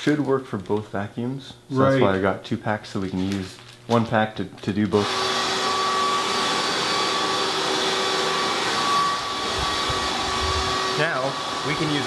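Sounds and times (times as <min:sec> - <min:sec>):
vacuum cleaner running: 0:05.0 - 0:12.0.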